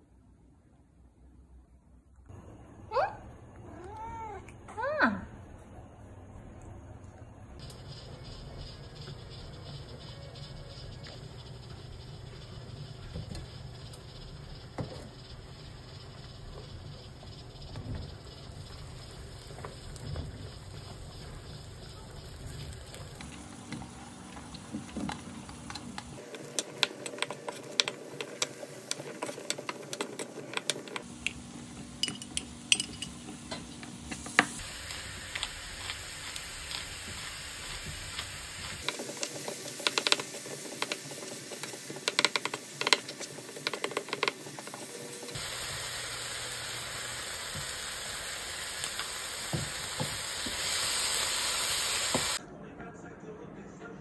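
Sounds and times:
pepper mill grinding: 0:07.6 - 0:52.2
food sizzling in frying pan: 0:07.6 - 0:52.4
wooden spoon scraping pan: 0:24.3 - 0:31.0.

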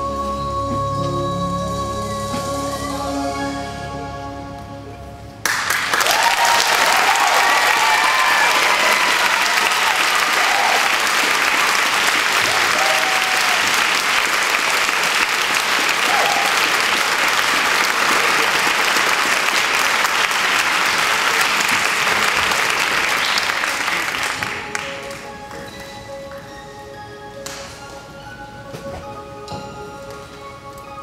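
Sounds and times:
audience applauding: 0:05.4 - 0:25.8.

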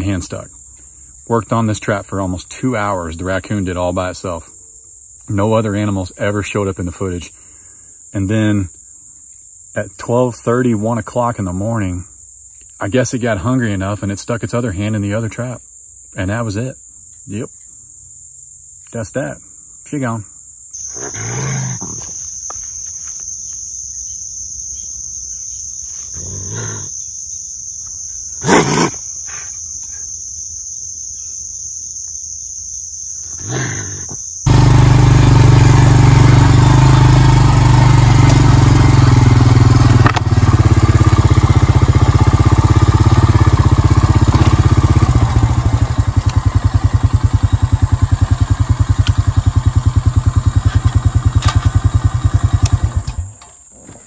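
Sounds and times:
high insect drone: 0:00.0 - 0:54.0
raccoon calling: 0:20.8 - 0:34.6
atv engine running: 0:34.4 - 0:53.4.

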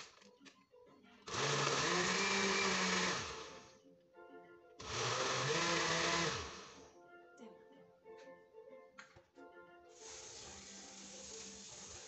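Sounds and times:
blender motor pulsing: 0:01.3 - 0:03.7, 0:04.8 - 0:06.8.

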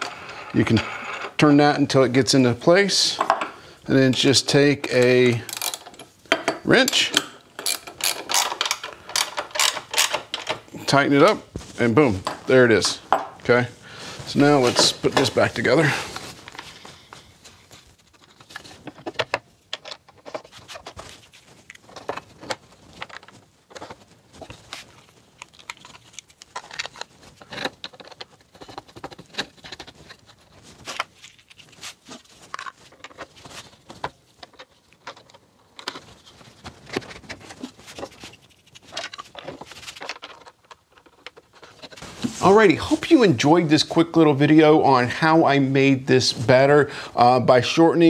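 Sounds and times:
wooden parts knocking and clinking: 0:05.0 - 0:10.8, 0:18.8 - 0:20.5, 0:38.9 - 0:42.0.

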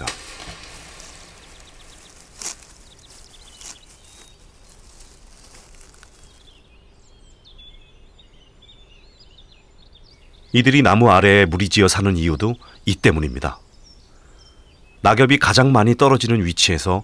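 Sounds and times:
high-pitched chirping calls: 0:00.0 - 0:09.4.

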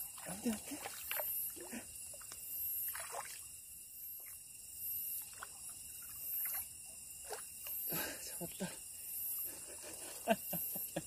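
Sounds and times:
water splashing and dripping: 0:00.0 - 0:04.4, 0:05.2 - 0:07.9.

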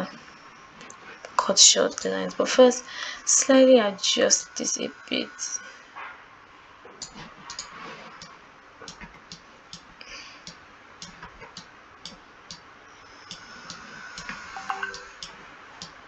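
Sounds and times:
computer mouse clicking: 0:07.0 - 0:12.6, 0:13.3 - 0:16.0.

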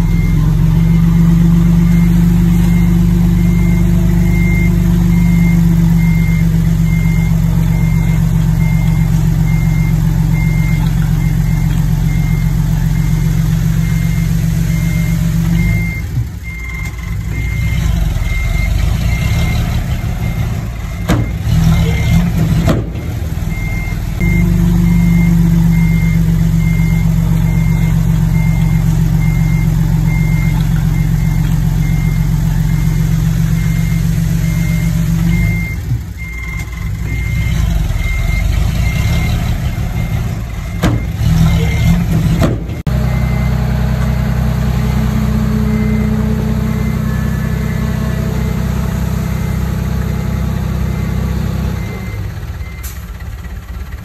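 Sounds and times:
diesel engine running loud: 0:00.0 - 0:54.0
reversing alarm beeping: 0:00.0 - 0:54.0
sharp knocks: 0:42.2 - 0:42.9.

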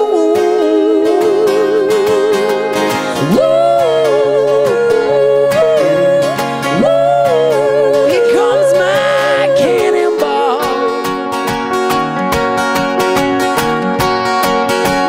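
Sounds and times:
person singing with vibrato: 0:00.0 - 0:11.6
strummed acoustic guitar: 0:00.0 - 0:15.0.

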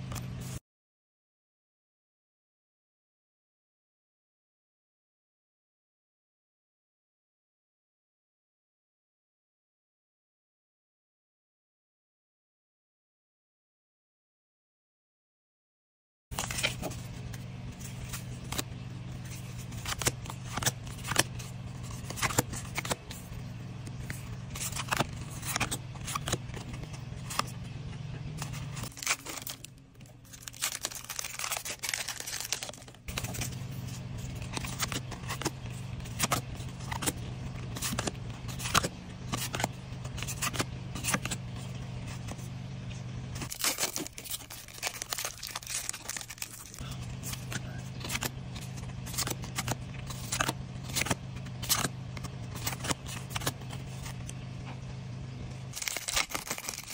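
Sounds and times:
low steady hum: 0:16.3 - 0:56.9
trading cards flicked and slid: 0:16.4 - 0:23.2, 0:23.8 - 0:29.5, 0:30.2 - 0:41.5, 0:49.0 - 0:54.4
foil wrappers crinkling and tearing: 0:28.4 - 0:41.4, 0:43.4 - 0:54.3, 0:55.7 - 0:56.9.

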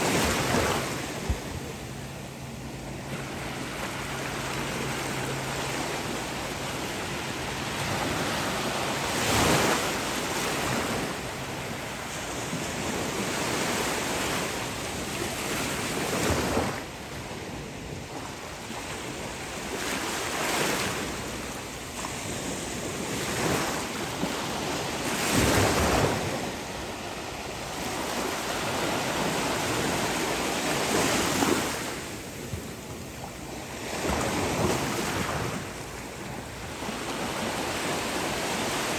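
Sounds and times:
ocean surf on a beach: 0:00.0 - 0:38.9.

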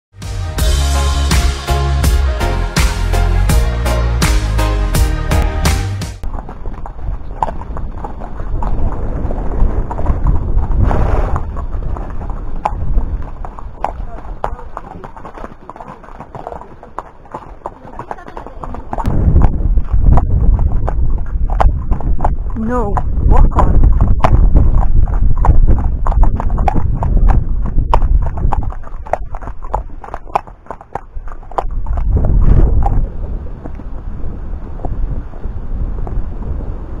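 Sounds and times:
hoof clicks on stone: 0:06.2 - 0:09.1, 0:09.8 - 0:33.0
low microphone rumble: 0:06.2 - 0:14.4, 0:19.0 - 0:29.4, 0:31.7 - 0:37.0
hooves clip-clopping on gravel: 0:06.2 - 0:34.0.

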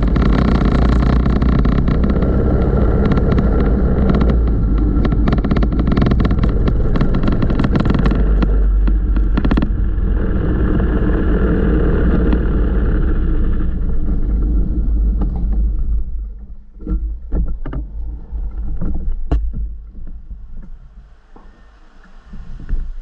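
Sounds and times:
clicks and knocks: 0:00.0 - 0:09.8
go-kart engine running: 0:00.0 - 0:16.2
rapid engine crackle: 0:00.0 - 0:23.0.

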